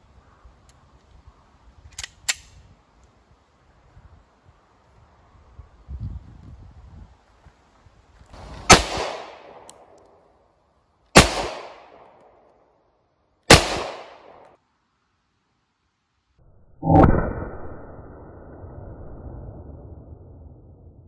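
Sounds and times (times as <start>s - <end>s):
blank pistol shots: 8.7s - 9.7s, 11.2s - 12.1s, 13.5s - 14.5s.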